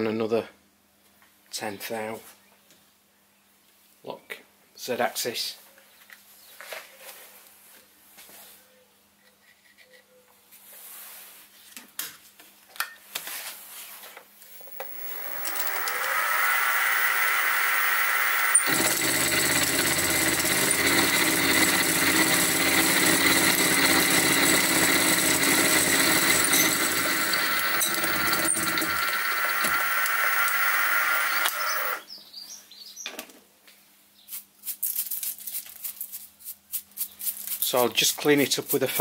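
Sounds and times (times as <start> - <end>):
mill cutting metal: 14.6 - 32.0.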